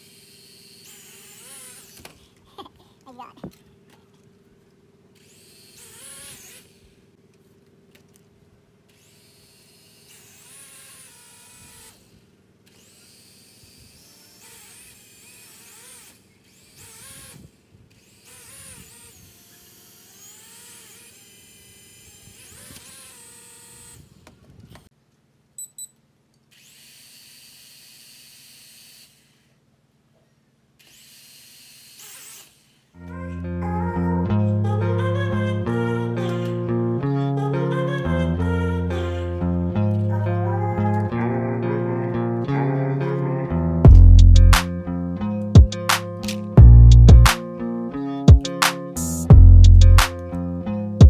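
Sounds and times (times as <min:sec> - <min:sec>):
toy quadcopter motors whirring: 0:00.0 - 0:24.9, 0:26.5 - 0:29.7, 0:30.8 - 0:33.3, 0:35.0 - 0:36.6
short beeps: 0:25.6 - 0:26.0.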